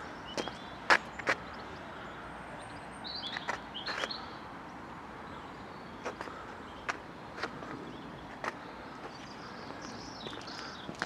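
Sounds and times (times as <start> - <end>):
footsteps on path: 0.0 - 1.6, 3.2 - 4.3, 6.0 - 11.0
distant traffic: 0.0 - 11.0.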